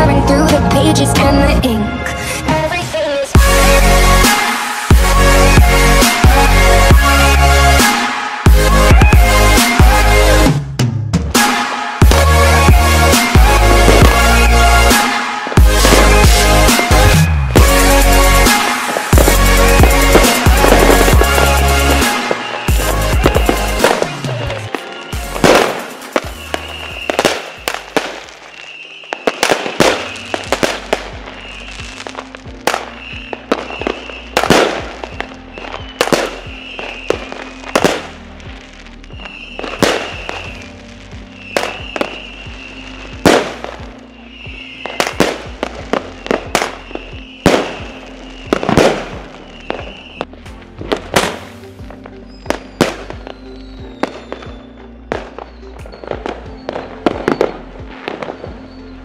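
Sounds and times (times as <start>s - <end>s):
background music: 0.0s - 59.0s
fireworks banging: 2.5s - 38.3s, 39.1s - 58.8s.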